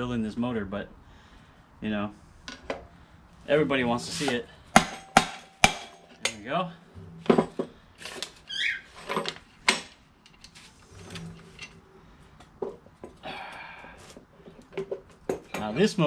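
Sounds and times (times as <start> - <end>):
short squeak: 8.4 - 9.1.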